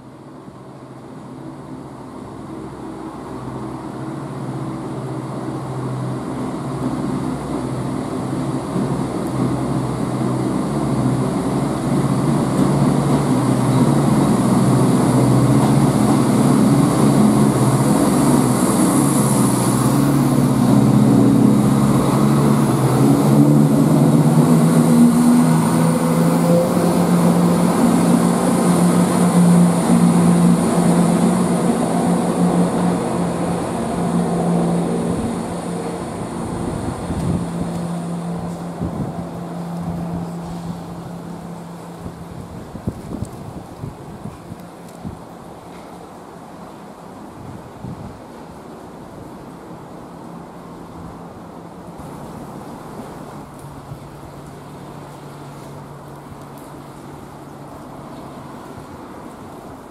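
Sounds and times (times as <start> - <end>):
diesel train engines droning: 0.0 - 47.4.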